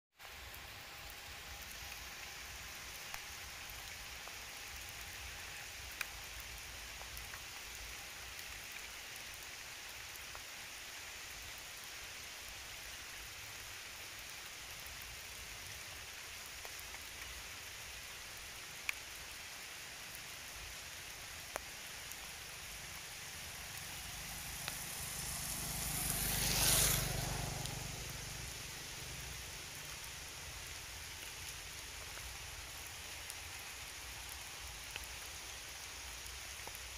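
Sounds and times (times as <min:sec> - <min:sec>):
rain hissing: 0:00.2 - 0:36.9
vehicle passing: 0:22.9 - 0:30.0.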